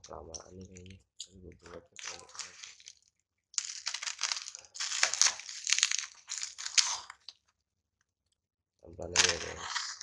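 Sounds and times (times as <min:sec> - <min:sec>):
plastic wrapping crinkling: 0:01.9 - 0:07.5, 0:09.2 - 0:10.0.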